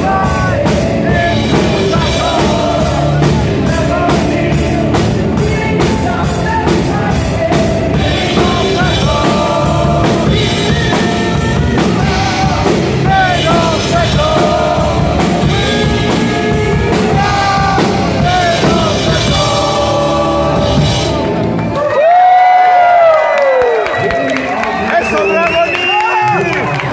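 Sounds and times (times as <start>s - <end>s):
drum kit with cymbal strikes: 0.0s - 21.4s
man singing long notes: 0.0s - 21.4s.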